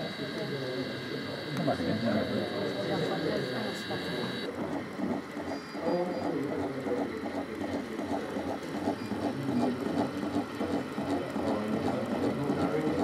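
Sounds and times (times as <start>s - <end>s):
model train running: 0.0s - 13.0s.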